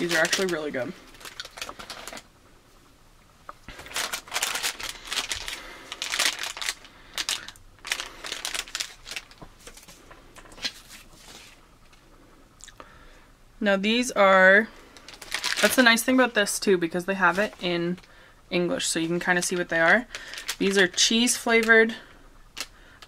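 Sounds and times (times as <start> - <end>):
plastic packaging crinkling: 0.0 - 2.3, 3.7 - 12.0, 14.9 - 18.2, 18.8 - 23.0.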